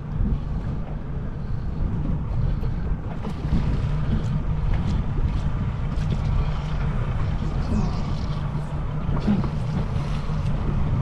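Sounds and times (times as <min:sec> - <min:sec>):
boat engine rumbling: 0:00.0 - 0:11.0
wind buffeting microphone: 0:00.0 - 0:11.0.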